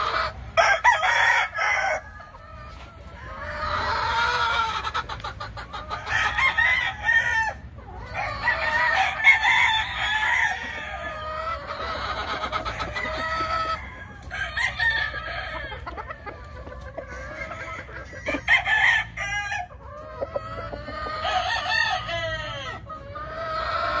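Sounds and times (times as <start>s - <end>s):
hens clucking: 0.0s - 24.0s
roosters crowing: 0.0s - 24.0s.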